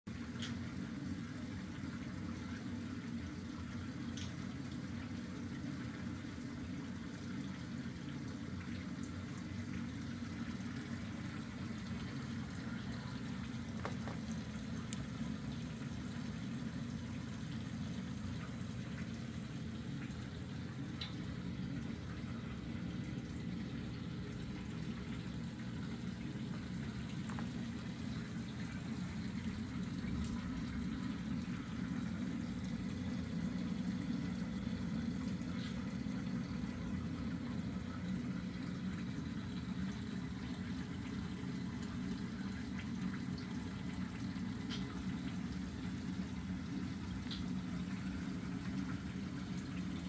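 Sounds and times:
circulating aquarium water rush: 0.1s - 50.0s
faint ticks: 4.1s - 4.4s.

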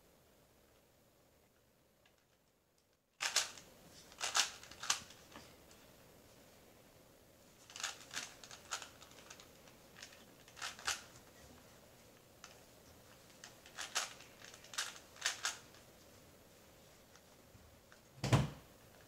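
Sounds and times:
puzzle cube clicking: 3.2s - 3.6s, 4.2s - 5.1s, 7.7s - 11.2s, 13.3s - 15.8s.

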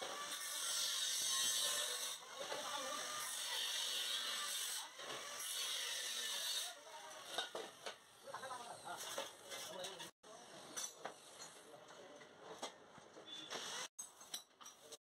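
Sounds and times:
angle grinder cutting steel: 0.0s - 10.1s.

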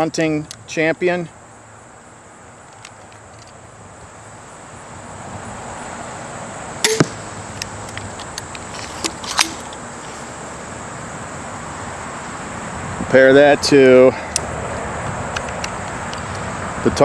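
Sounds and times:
crossbow firing snap: 6.8s - 7.3s.

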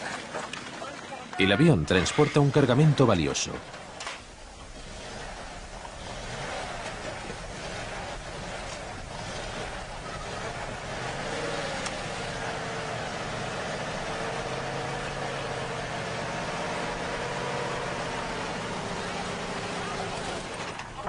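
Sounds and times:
engine running steadily: 2.0s - 21.0s.

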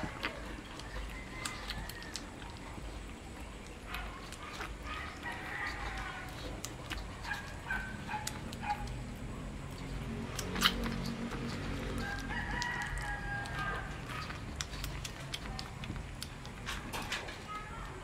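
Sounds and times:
puppy eating and licking: 0.0s - 18.0s
rooster crowing: 0.9s - 2.3s, 5.0s - 6.5s, 11.9s - 14.2s.

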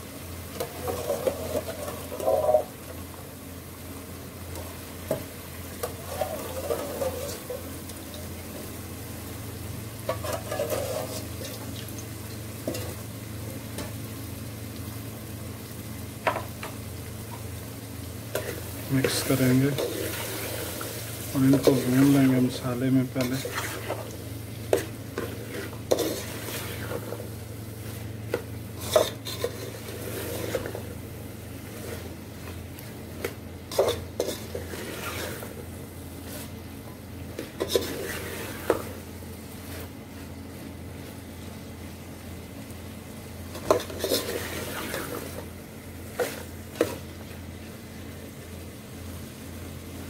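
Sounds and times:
faint sizzle: 0.0s - 50.0s
metal spoon stirring in pot: 0.6s - 2.7s, 5.8s - 7.7s, 10.1s - 11.6s, 21.4s - 27.3s, 28.3s - 30.8s, 33.1s - 35.6s, 37.3s - 38.9s, 43.5s - 45.4s.

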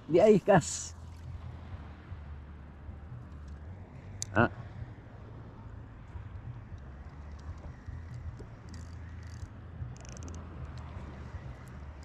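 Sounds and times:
wind rumbling on microphone: 0.9s - 12.0s
high ticks: 6.7s - 10.9s.

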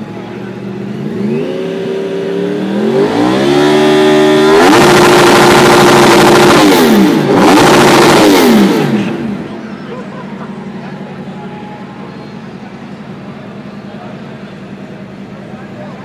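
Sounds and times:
motorcycle engine revving hard: 0.8s - 9.6s.

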